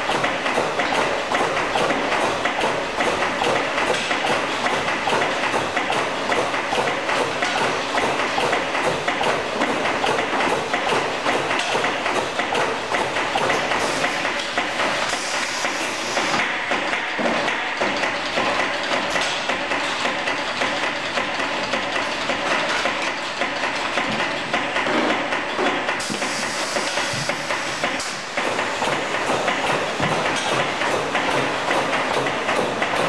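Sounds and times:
machine mechanical clatter: 0:00.0 - 0:33.0
machine hiss: 0:13.7 - 0:16.4, 0:26.0 - 0:30.4.

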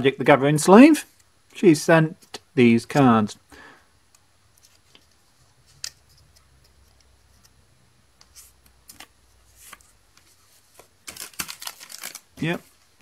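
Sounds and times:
cards sliding in plastic sleeve: 0:08.2 - 0:12.6.

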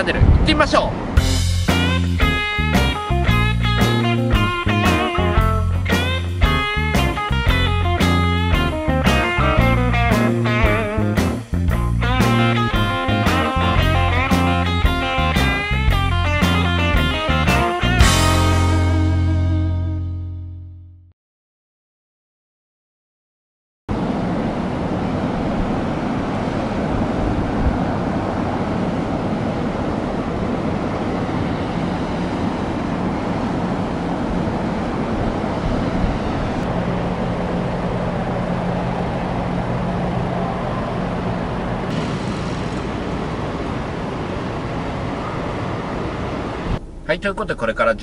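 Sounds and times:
idling engines rumbling: 0:01.0 - 0:18.6, 0:24.3 - 0:47.0
steady low hum: 0:23.9 - 0:48.0.

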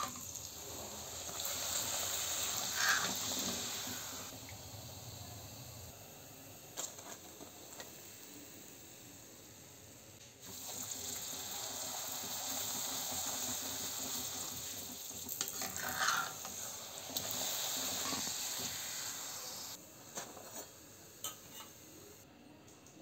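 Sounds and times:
deep-frying sizzle in oil: 0:00.0 - 0:06.0, 0:10.4 - 0:19.8.

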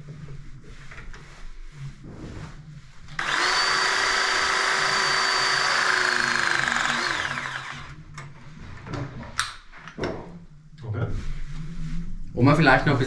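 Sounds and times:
pipe press tool motor whine: 0:03.2 - 0:08.0.

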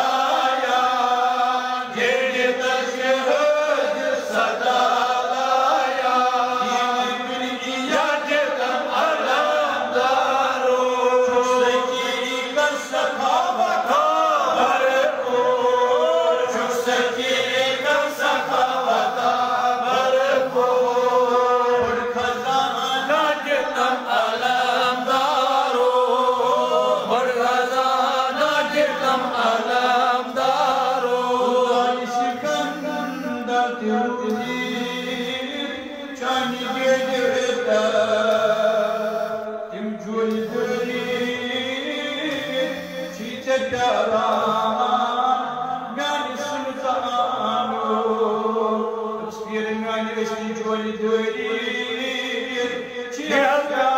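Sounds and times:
person chanting: 0:00.0 - 0:53.9.

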